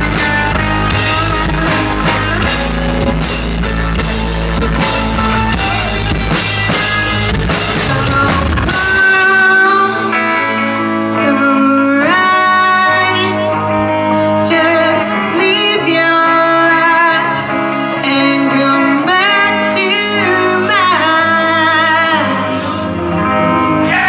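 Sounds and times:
drum kit: 0.0s - 10.3s
electric guitar: 0.0s - 24.0s.

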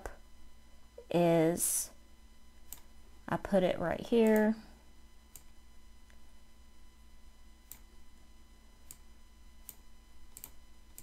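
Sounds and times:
low electrical hum: 0.0s - 11.0s
computer mouse clicks: 2.7s - 2.9s, 4.2s - 4.5s, 5.3s - 6.2s, 7.6s - 7.9s, 8.8s - 11.0s.

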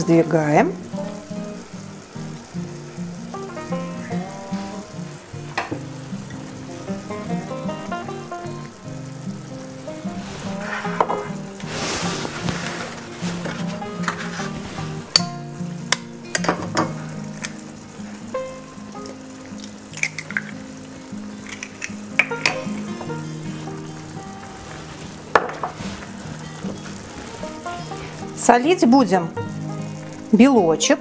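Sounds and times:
sauce sizzling in frying pan: 0.0s - 31.0s
eggs cracking taps: 19.0s - 20.6s, 21.4s - 22.9s.

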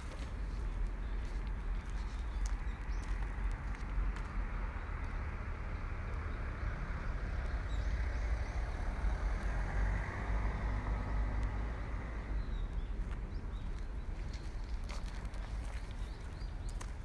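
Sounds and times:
footsteps on paved path: 0.0s - 5.3s, 10.6s - 17.0s.

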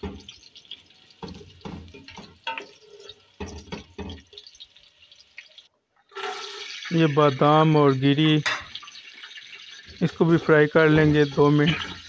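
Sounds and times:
chicken frying and crackling: 0.0s - 12.0s
wooden spatula knocking pot: 1.2s - 2.7s.

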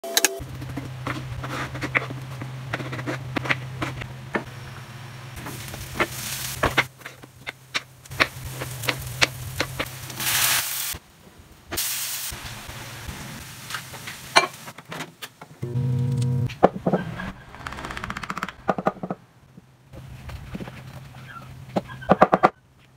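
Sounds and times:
steady low hum: 0.4s - 9.7s, 15.6s - 17.5s
vegetables sizzling in a pan: 4.6s - 11.0s, 11.7s - 14.8s.

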